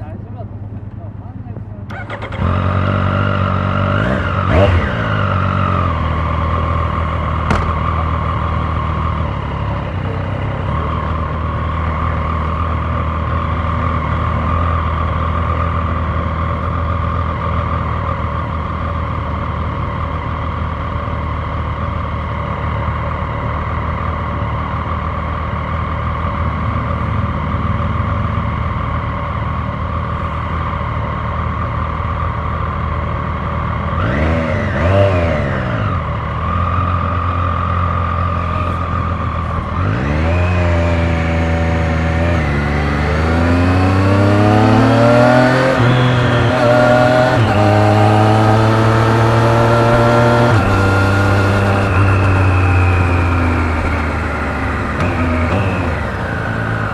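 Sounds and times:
motorcycle engine starting and revving: 1.8 - 56.9
motorcycle engine idling: 5.1 - 34.0, 36.0 - 39.8.

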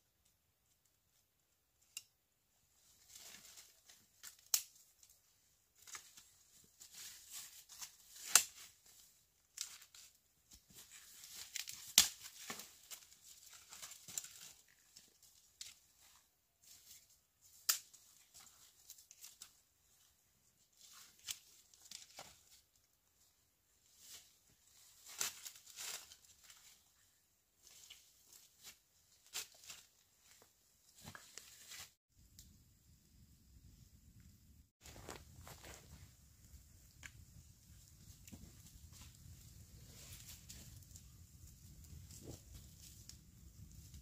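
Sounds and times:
rustling and tearing: 23.9 - 26.8.

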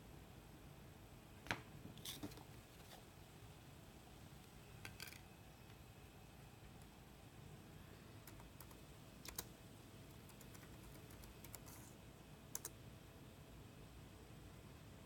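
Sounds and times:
keyboard keystrokes: 8.2 - 9.5, 10.1 - 11.8.

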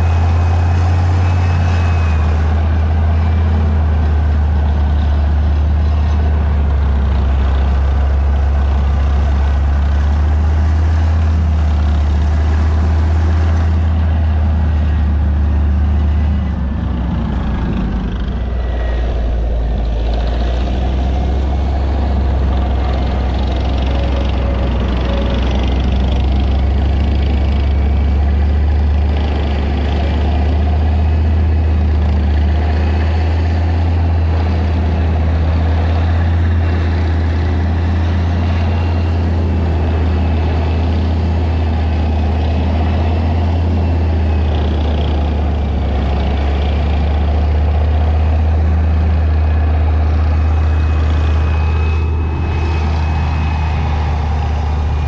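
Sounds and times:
tank engine deep drone: 0.0 - 55.0.

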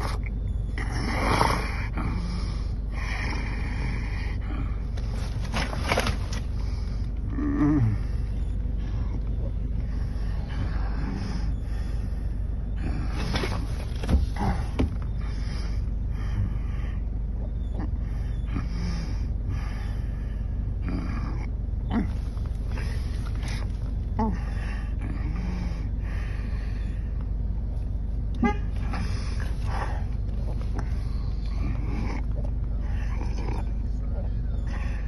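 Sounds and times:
man breathing heavily: 0.9 - 28.0, 28.7 - 35.0
car cabin rumble: 4.6 - 19.2.

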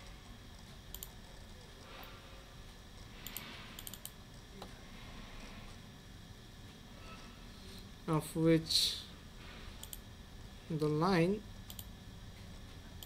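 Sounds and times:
low room hiss: 0.0 - 13.0
computer mouse clicks: 0.9 - 1.2, 3.2 - 4.2, 9.8 - 10.0, 11.7 - 11.9.

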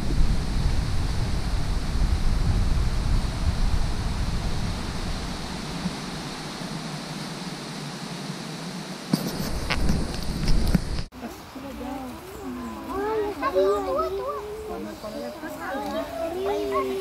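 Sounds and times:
wind buffeting microphone: 0.0 - 8.2, 9.1 - 11.1
rushing outdoor noise: 0.0 - 17.0.

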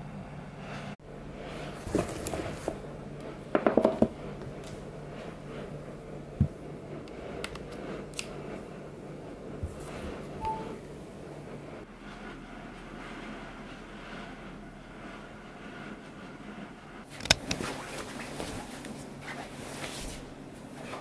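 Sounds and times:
low steady hum: 0.0 - 11.8
short high beep: 10.4 - 10.8
sharp clicks: 17.2 - 17.6.

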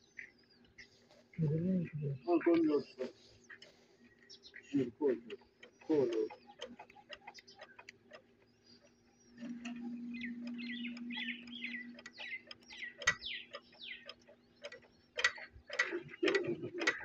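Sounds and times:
birds chirping: 0.0 - 17.0
steady low hum: 0.0 - 17.0
metallic clicks of diesel engine: 2.5 - 17.0.

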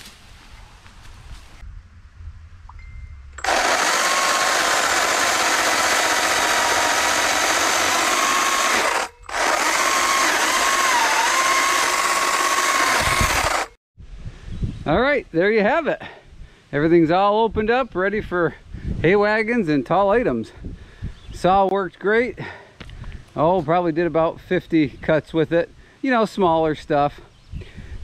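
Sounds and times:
battery chainsaw cutting log: 3.4 - 13.8.

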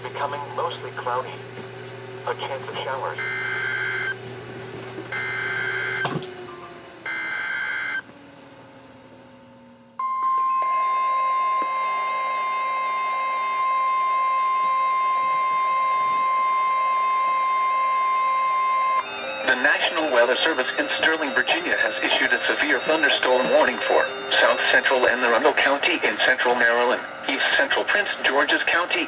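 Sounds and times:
steady warning alarm tone: 2.1 - 4.2, 5.1 - 8.3, 9.9 - 29.0
radio alert beeps: 2.3 - 4.2, 10.0 - 29.0.

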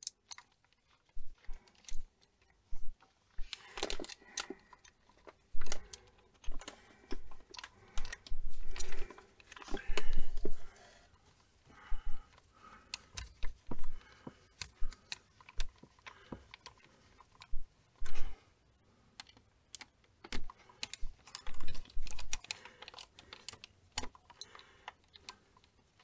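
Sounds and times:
screwdriver metal clicks and taps: 0.0 - 0.6.

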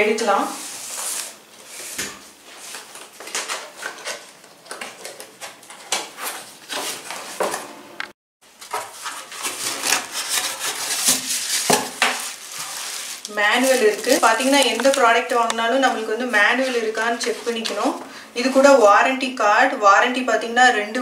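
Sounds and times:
polystyrene foam scraping: 0.4 - 2.9, 8.5 - 15.1
cardboard flaps scraping: 5.6 - 7.7, 8.5 - 15.0.

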